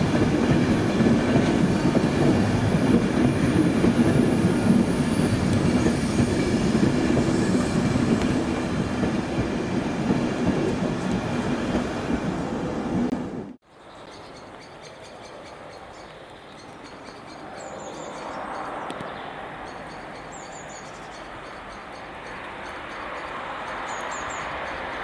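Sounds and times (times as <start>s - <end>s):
train rumbling: 0.0s - 13.6s.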